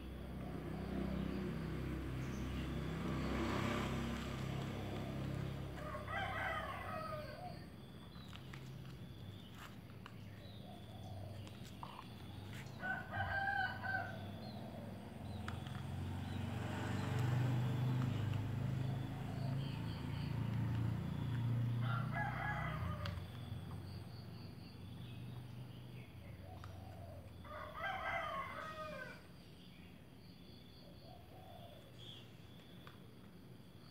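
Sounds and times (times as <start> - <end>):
rooster crowing: 5.8 - 7.7, 12.8 - 14.4, 21.7 - 23.3, 27.4 - 29.3.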